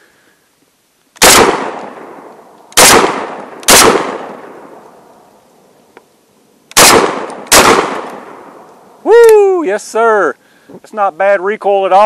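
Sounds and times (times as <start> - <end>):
shotgun shots echoing: 1.2 - 4.8, 6.7 - 8.7.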